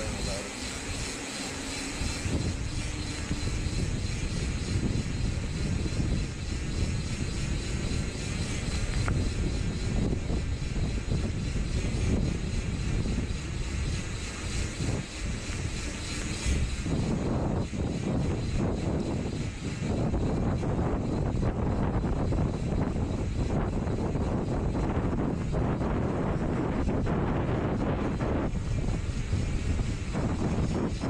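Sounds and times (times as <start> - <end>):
road rumble: 0.0 - 17.6
wind buffeting microphone: 0.0 - 31.0.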